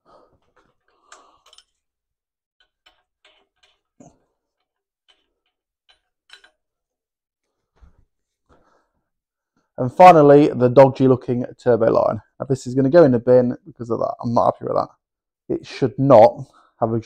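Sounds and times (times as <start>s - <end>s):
spanner and bolts clicking: 0.5s - 1.8s, 2.6s - 6.7s.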